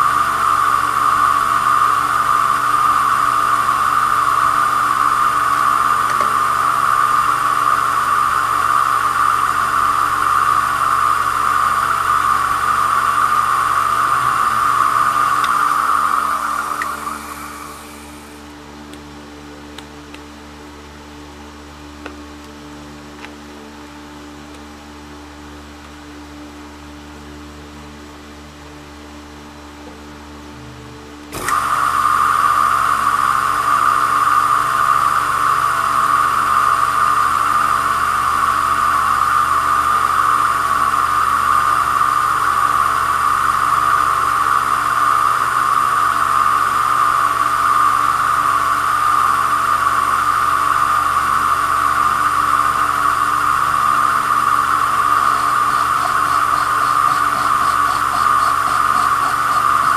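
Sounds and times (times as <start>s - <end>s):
lathe whirring: 0.0s - 18.8s, 31.2s - 59.9s
faint hum: 0.0s - 59.9s.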